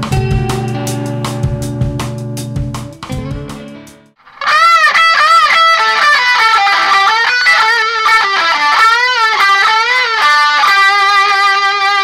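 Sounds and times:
electric guitar lead phrase: 0.0s - 12.0s.

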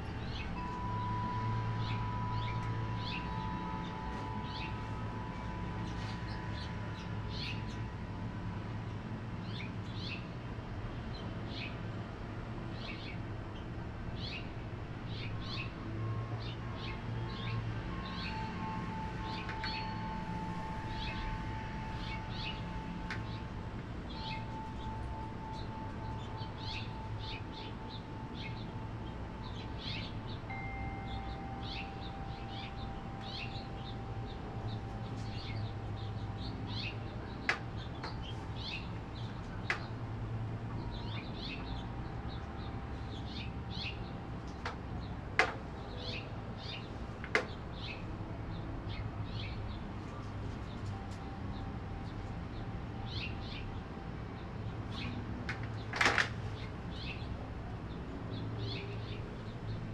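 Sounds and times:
wind chime ringing: 0.0s - 9.9s, 18.0s - 44.1s
small birds chirping: 24.1s - 40.0s.

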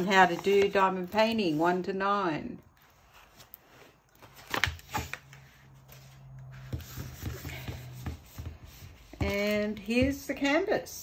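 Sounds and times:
paper and plastic crinkling: 2.7s - 6.6s.

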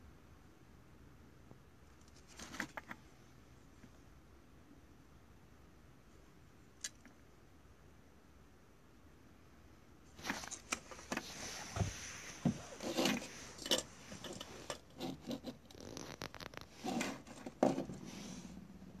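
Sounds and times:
plastic parts clicking and scraping: 10.2s - 18.0s.

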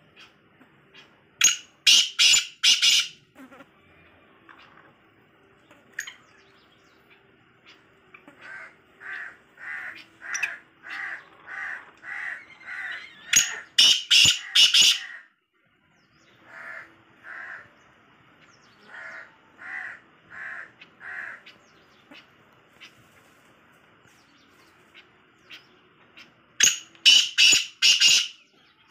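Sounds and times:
francolins calling harsh notes: 1.4s - 3.4s, 7.6s - 15.4s, 26.2s - 28.9s.

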